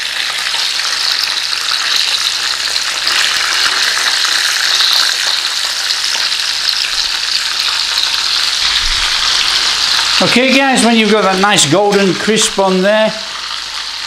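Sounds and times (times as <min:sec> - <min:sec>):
chicken sizzling in hot oil: 0:00.0 - 0:14.0.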